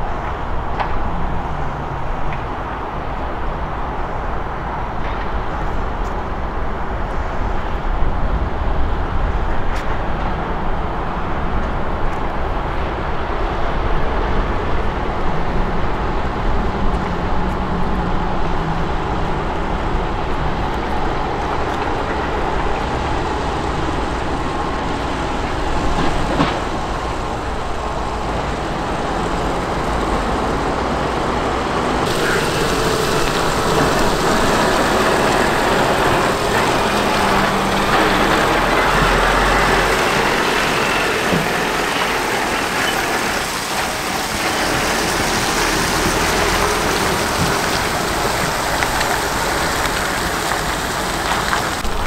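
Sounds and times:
constant rushing hiss: 0:00.0 - 0:52.0
excavator engine rumbling: 0:12.5 - 0:52.0.

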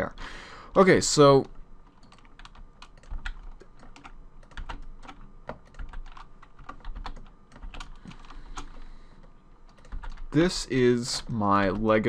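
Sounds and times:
keyboard keys clicking: 0:01.2 - 0:10.3, 0:11.6 - 0:12.0.

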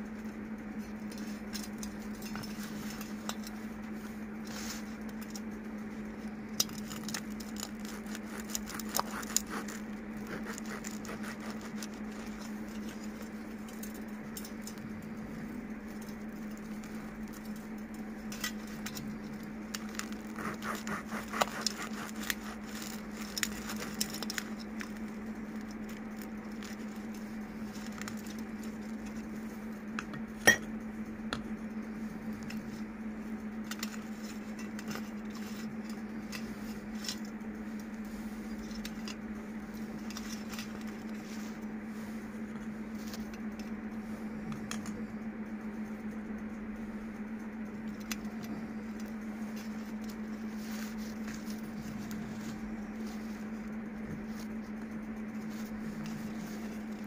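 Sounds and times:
steady low hum: 0:00.0 - 0:57.0
bread tearing crackles: 0:06.6 - 0:14.0, 0:14.8 - 0:29.4.

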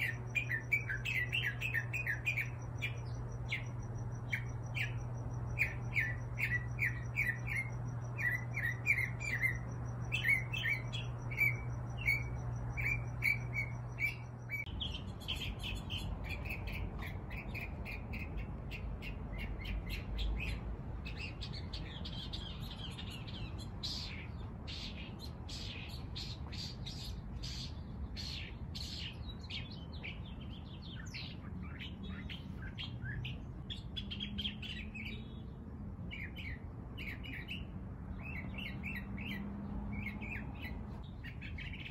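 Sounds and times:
steady low hum: 0:00.0 - 0:22.1
small songbirds chirping: 0:00.0 - 0:41.9.

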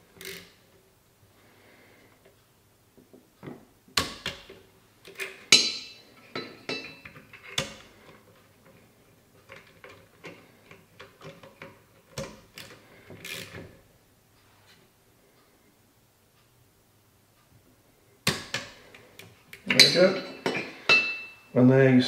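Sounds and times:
metal clinks and scrapes: 0:05.2 - 0:07.6, 0:19.6 - 0:21.5.

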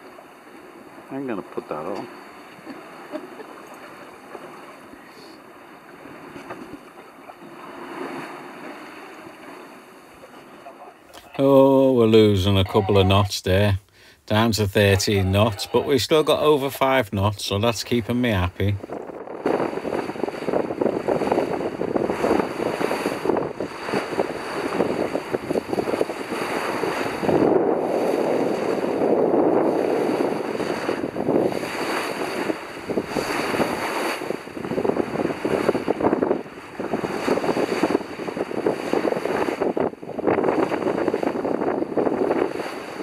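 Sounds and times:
water rushing along hull: 0:00.0 - 0:43.0
wind buffeting microphone: 0:18.8 - 0:43.0.

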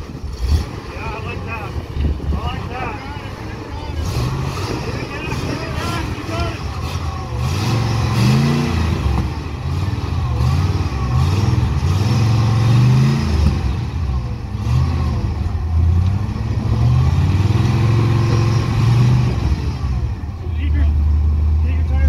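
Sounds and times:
engine revving under load: 0:00.0 - 0:22.0.

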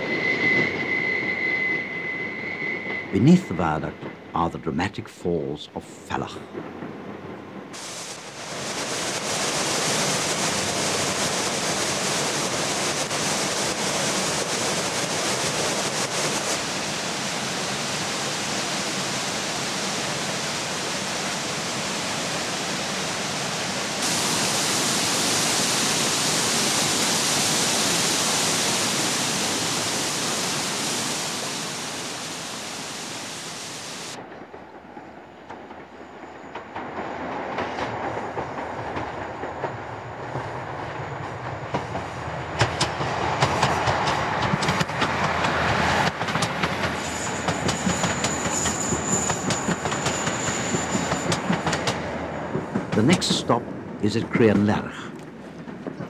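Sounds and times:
waterfall roaring: 0:07.8 - 0:34.2.

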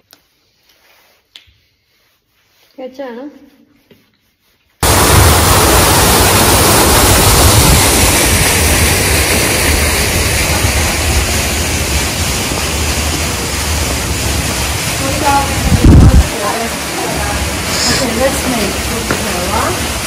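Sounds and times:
loud rushing noise with low rumble: 0:04.8 - 0:20.0.

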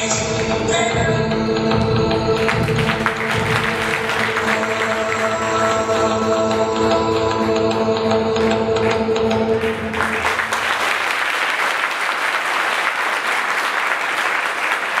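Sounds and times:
music with held notes: 0:00.0 - 0:10.7
audience applauding: 0:02.4 - 0:06.3, 0:08.9 - 0:15.0.

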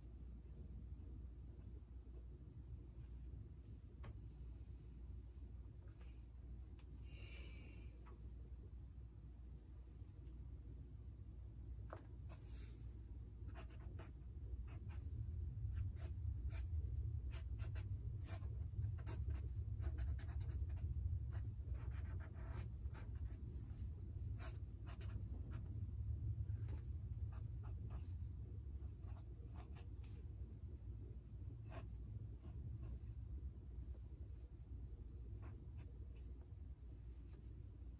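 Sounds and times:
low steady rumble: 0:00.0 - 0:37.9
pen scratching on paper: 0:13.4 - 0:15.1, 0:15.7 - 0:25.7, 0:26.6 - 0:28.2, 0:28.8 - 0:30.2, 0:31.6 - 0:33.0.

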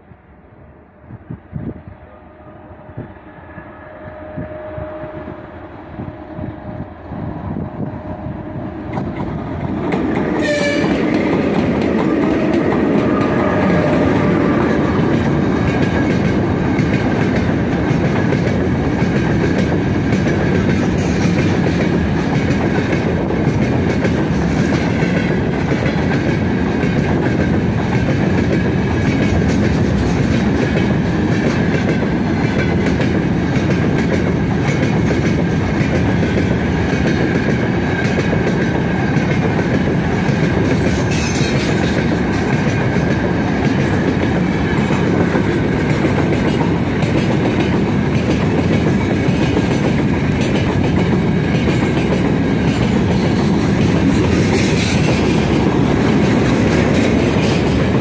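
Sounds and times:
locomotive horn: 0:01.6 - 0:08.8, 0:10.3 - 0:11.2, 0:13.0 - 0:14.7
wheels clacking over rail joints: 0:08.9 - 0:58.0.

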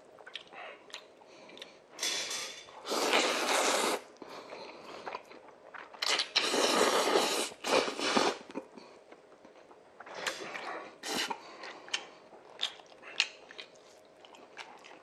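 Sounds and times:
quiet chewing: 0:00.1 - 0:01.8, 0:03.2 - 0:15.0
person slurping noodles: 0:02.1 - 0:04.1, 0:06.1 - 0:08.5.

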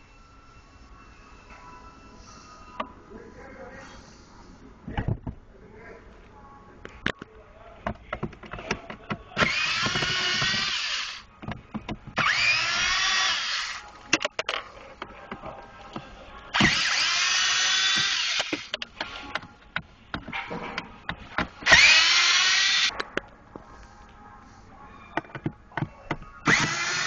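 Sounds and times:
electric screwdriver motor whine: 0:09.4 - 0:11.2, 0:12.2 - 0:13.8, 0:16.6 - 0:18.7, 0:21.7 - 0:22.9, 0:26.4 - 0:27.0.

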